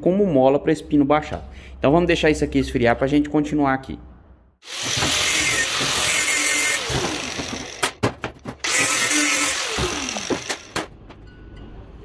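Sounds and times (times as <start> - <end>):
handheld power tool running: 4.6 - 10.9.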